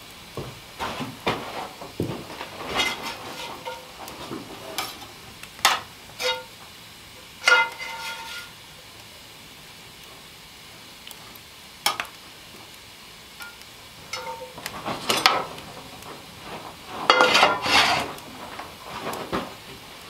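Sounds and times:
metal utensil scraping a skillet: 2.4 - 6.6, 7.4 - 8.6, 13.4 - 15.6, 16.9 - 18.2
pan set down on stove: 13.4 - 15.5.

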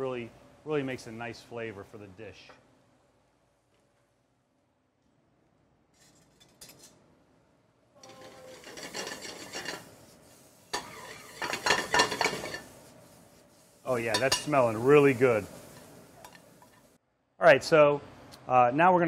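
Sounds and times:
spoon scraping metal pan: 8.0 - 9.9, 10.7 - 12.7.

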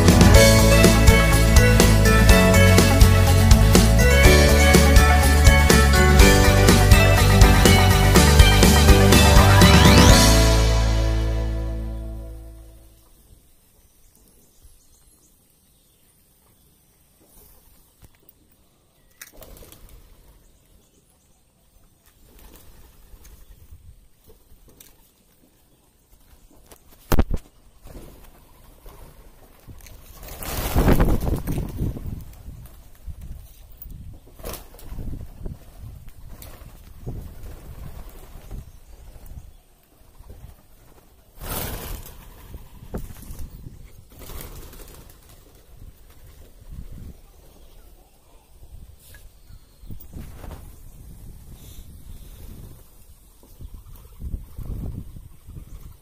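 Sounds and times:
wings flapping: 19.2 - 20.4, 22.1 - 23.6, 26.5 - 33.6, 34.2 - 47.0.

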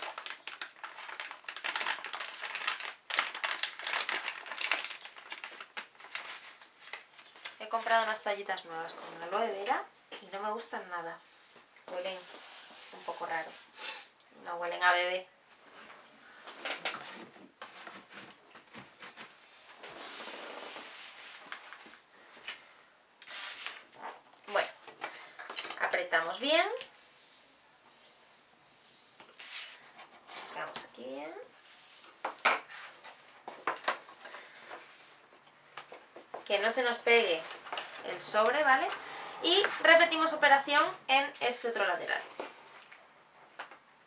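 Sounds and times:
plastic wipe pack crinkling: 0.0 - 8.2
hands rubbing with wet wipe: 17.5 - 22.0.

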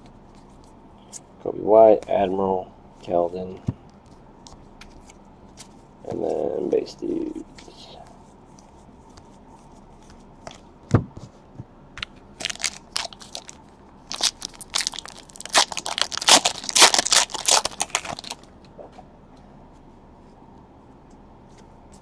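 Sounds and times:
foil wrapper crinkling and tearing: 12.4 - 18.4.

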